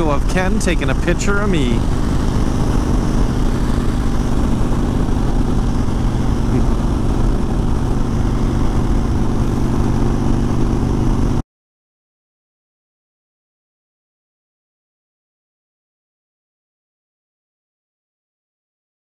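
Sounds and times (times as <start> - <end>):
motorcycle engine running: 0.0 - 11.4
wind and road noise: 0.0 - 11.4.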